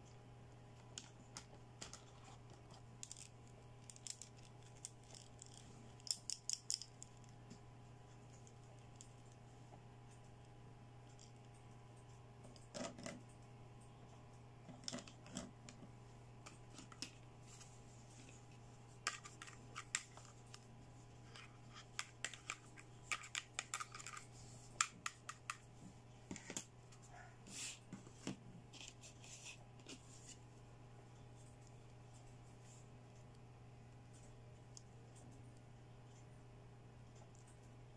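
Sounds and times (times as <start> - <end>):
faint low hum: 0.0 - 37.9
plastic toys clicking: 21.8 - 24.2.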